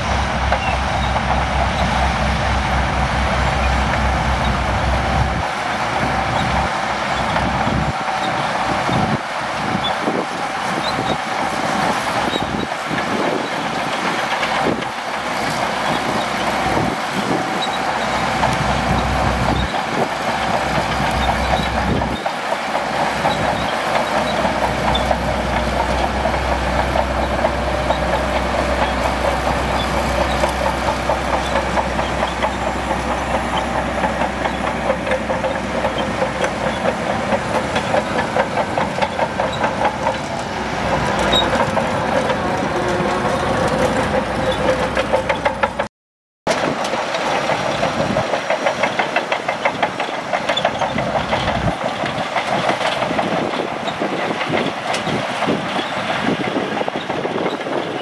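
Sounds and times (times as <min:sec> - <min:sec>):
bulldozer diesel engine running: 0:00.0 - 0:45.9, 0:46.5 - 0:58.0
steel tracks rattling: 0:00.0 - 0:45.9, 0:46.5 - 0:58.0.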